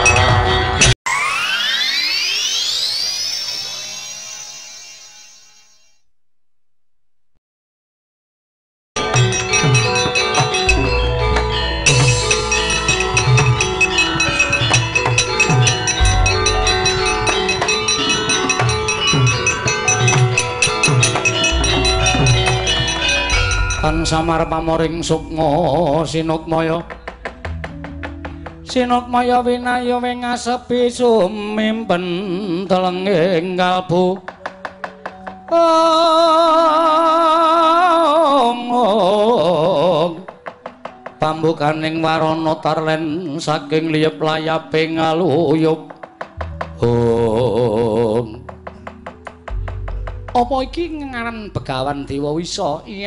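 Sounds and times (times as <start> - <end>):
metallophones ringing: 0.0 - 6.0, 9.0 - 30.0
hand drum strokes: 9.2 - 29.0
deep gong: 10.6 - 29.3
person singing with vibrato: 35.5 - 40.4.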